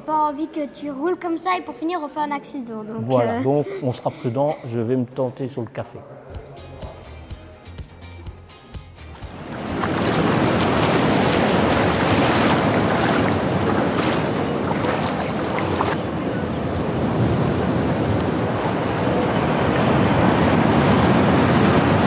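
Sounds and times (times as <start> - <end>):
waves washing on sandy beach: 9.2 - 22.0
wind on microphone: 9.3 - 22.0.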